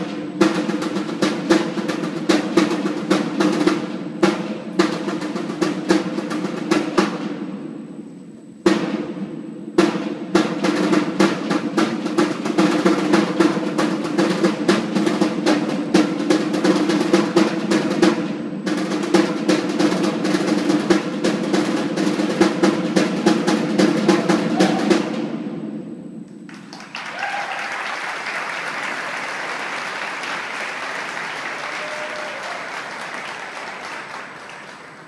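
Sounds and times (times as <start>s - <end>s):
band music with snare drumming: 0.0s - 35.0s
audience applauding: 26.5s - 35.0s.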